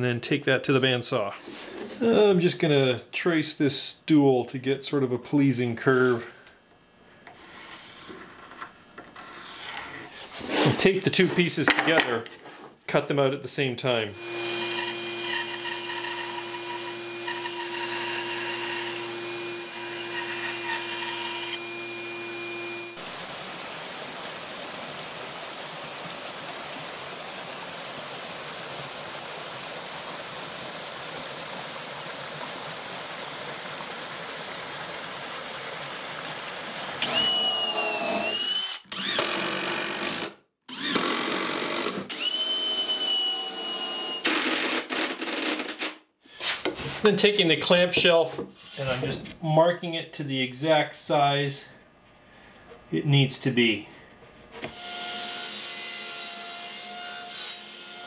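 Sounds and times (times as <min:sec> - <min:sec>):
bandsaw humming: 0:14.1 - 0:23.1, 0:37.0 - 0:45.7
cordless drill whirring: 0:37.0 - 0:45.0.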